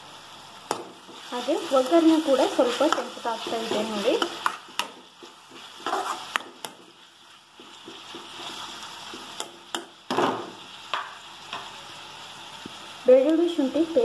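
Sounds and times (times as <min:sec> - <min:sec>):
soft sizzle of oil: 0:00.0 - 0:14.0
ladle scraping a metal pan: 0:05.5 - 0:06.4.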